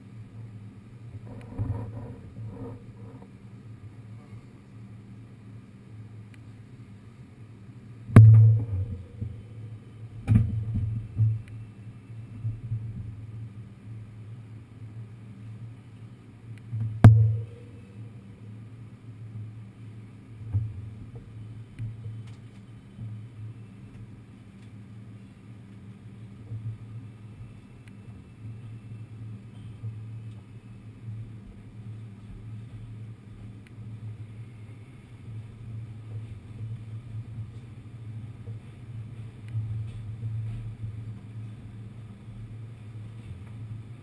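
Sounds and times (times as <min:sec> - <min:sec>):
mechanical hum: 0:00.0 - 0:44.0
subway car low rumble: 0:00.0 - 0:44.0
sharp metallic knocks: 0:08.1 - 0:09.6, 0:17.0 - 0:18.1.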